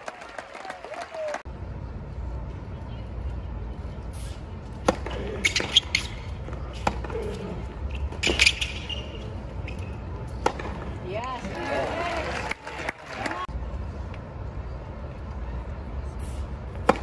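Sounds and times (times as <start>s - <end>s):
stadium crowd noise: 0.0s - 5.6s, 9.7s - 17.0s
rackets striking tennis ball: 4.8s - 11.0s, 16.8s - 17.0s
shoe squeaks on court: 5.1s - 10.1s.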